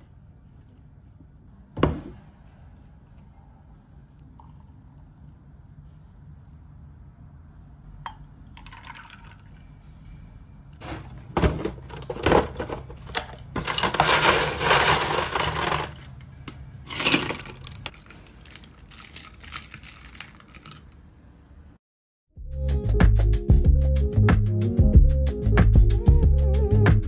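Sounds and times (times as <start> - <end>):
water pouring: 8.6 - 9.5.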